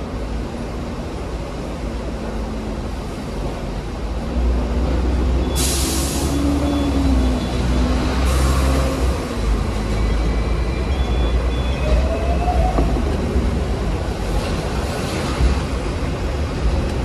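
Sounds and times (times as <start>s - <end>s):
tram rumbling on rails: 0.0s - 17.0s
short air hisses: 5.6s - 6.4s.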